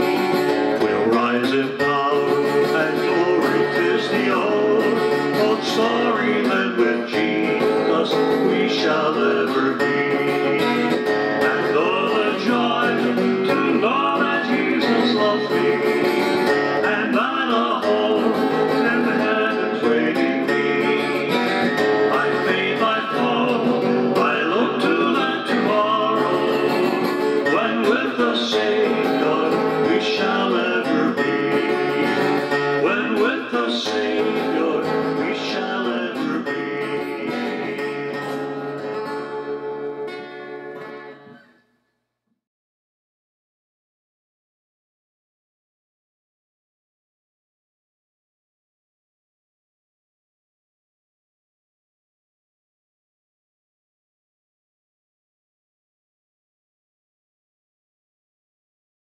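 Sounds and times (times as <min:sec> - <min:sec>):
man singing: 0:00.0 - 0:38.4
strummed acoustic guitar: 0:00.0 - 0:41.6.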